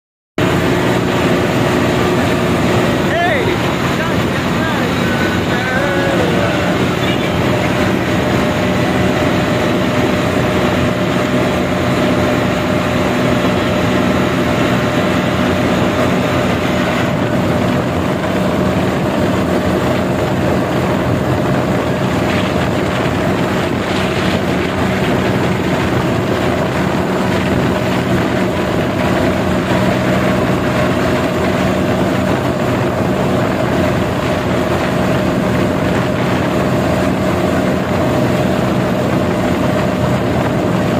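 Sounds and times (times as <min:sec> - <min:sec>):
tractor diesel engine running: 0:00.4 - 0:40.9.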